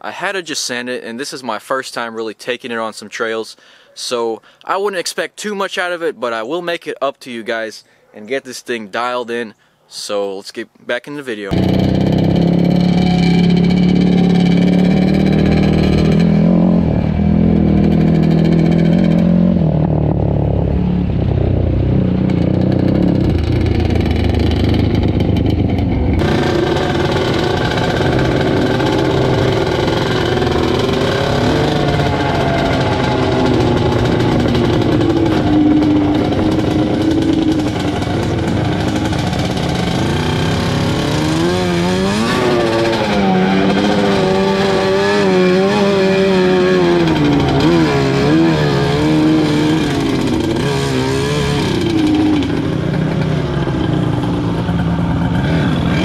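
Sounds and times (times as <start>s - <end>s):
quad engine running: 11.5s - 56.0s
two-stroke engine revving: 11.5s - 56.0s.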